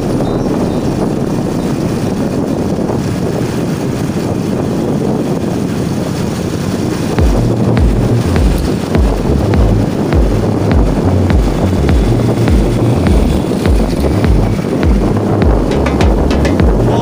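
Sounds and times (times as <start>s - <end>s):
road noise from moving vehicle: 0.0s - 17.0s
wind noise: 0.0s - 17.0s
low thumps: 7.1s - 17.0s.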